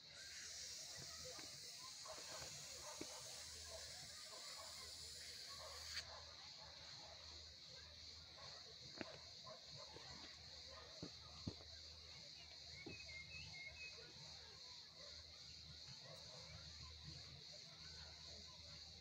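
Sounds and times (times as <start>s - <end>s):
steady high hiss: 0.0s - 6.1s
faint bird-like chirps: 12.1s - 17.2s.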